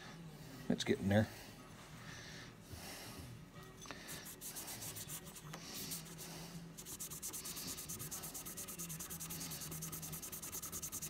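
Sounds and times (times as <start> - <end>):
cloth rubbing on metal part: 4.1 - 11.0.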